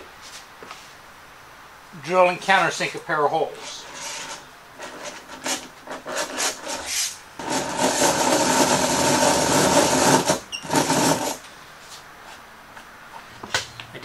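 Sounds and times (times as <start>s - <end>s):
hand drill scraping into wood: 3.6s - 11.5s
countersink bit grinding chatter: 7.4s - 11.4s.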